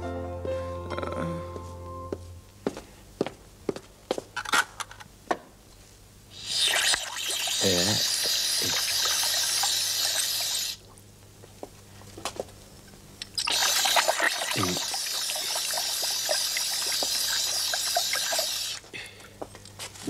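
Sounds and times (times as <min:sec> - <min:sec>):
tap water running into sink: 0:06.4 - 0:10.8, 0:13.4 - 0:18.8.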